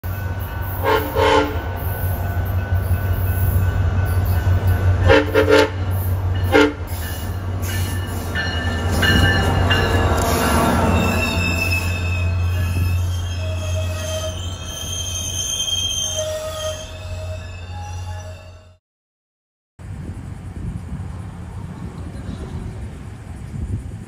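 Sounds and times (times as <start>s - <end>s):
locomotive engine drone: 0.0s - 15.2s
train wheels and brakes squealing: 0.0s - 18.8s
locomotive horn blasts: 0.2s - 2.9s, 4.9s - 7.1s.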